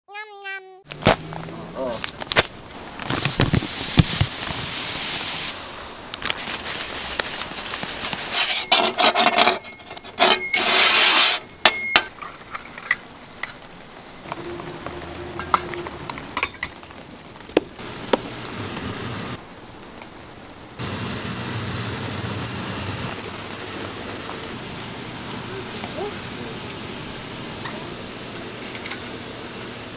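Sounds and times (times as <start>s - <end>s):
hissing rustling: 1.9s - 8.4s
sugar rustling and pouring: 3.0s - 8.5s
stick scraping in metal ladle: 8.3s - 11.9s
metal utensils clinking: 8.3s - 13.6s, 27.6s - 29.8s.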